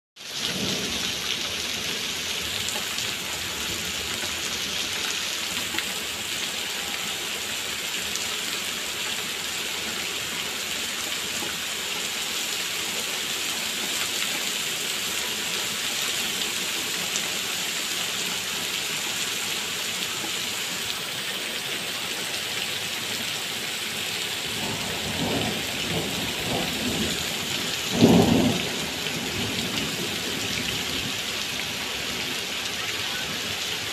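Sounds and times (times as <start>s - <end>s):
heavy rain on paving: 0.2s - 33.9s
low rumble of thunder: 24.4s - 31.2s.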